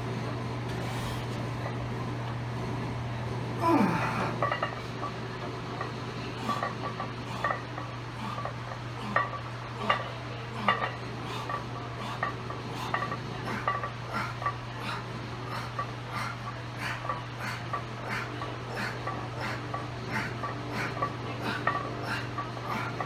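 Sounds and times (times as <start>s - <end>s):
steady low hum: 0.0s - 23.0s
weight plates clinking: 5.8s - 14.6s.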